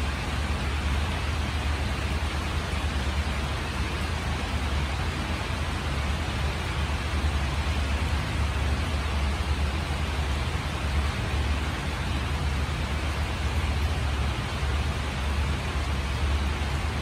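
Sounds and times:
rain falling: 0.0 - 17.0.

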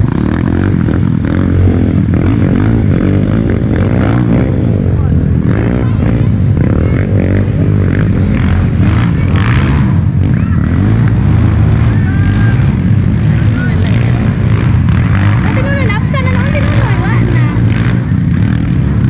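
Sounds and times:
motorcycle engines revving: 0.0 - 19.0
faint voices: 4.7 - 18.5.

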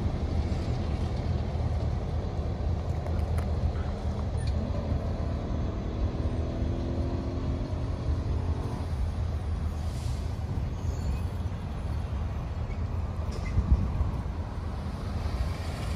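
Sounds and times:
road vehicle rumble: 0.0 - 15.9.

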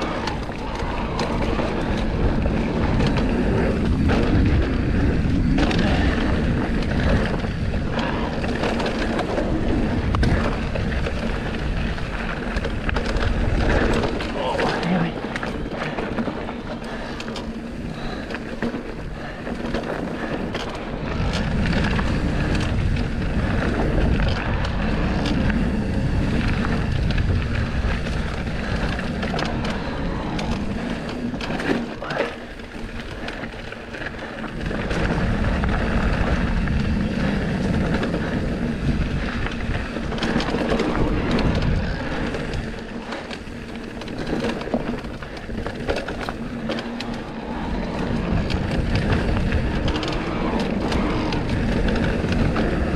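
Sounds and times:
bike clicks and rattles: 0.0 - 52.9
tyres rumbling over dirt: 0.0 - 52.9
wind buffeting microphone: 0.0 - 52.9.

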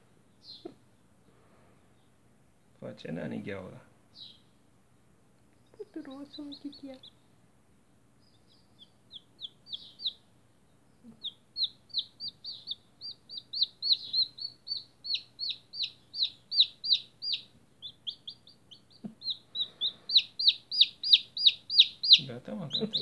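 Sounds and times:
chick peeping: 0.3 - 0.9, 5.6 - 7.2, 8.2 - 23.0.

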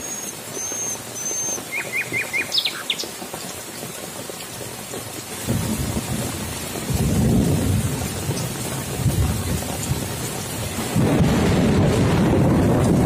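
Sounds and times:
heavy rain falling: 0.0 - 13.0
rolling thunder: 5.4 - 13.0.

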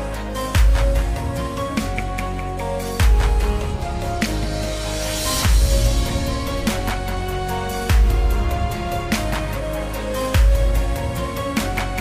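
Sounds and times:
background music with beat: 0.0 - 12.0
heavy bass hit: 3.0 - 9.3.

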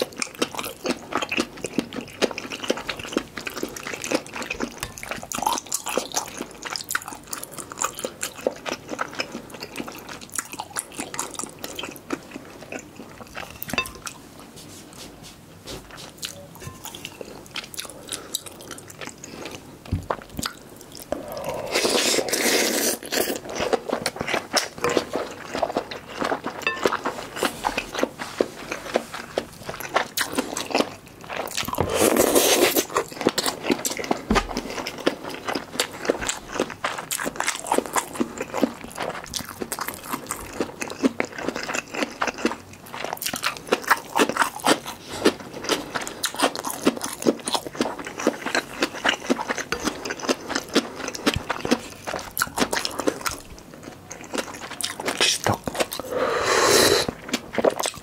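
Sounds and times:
chewing food: 0.0 - 14.2, 15.6 - 56.2, 57.0 - 58.0.

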